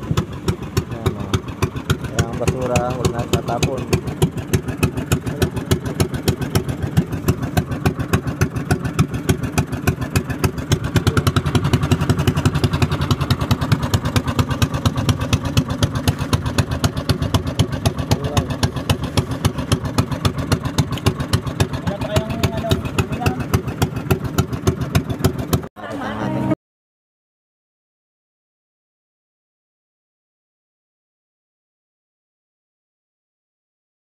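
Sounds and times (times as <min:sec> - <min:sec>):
boat engine chugging: 0:00.0 - 0:26.6.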